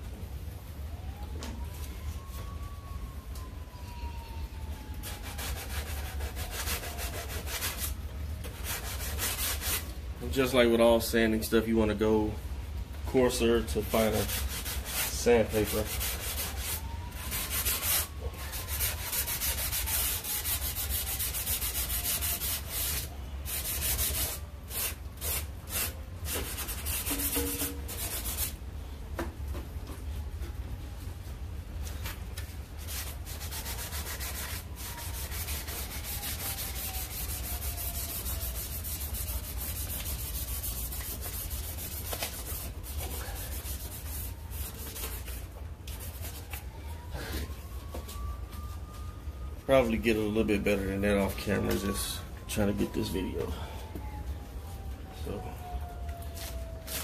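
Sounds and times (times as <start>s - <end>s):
sandpaper scraping: 5.0s - 9.9s, 13.8s - 28.6s, 32.8s - 46.6s.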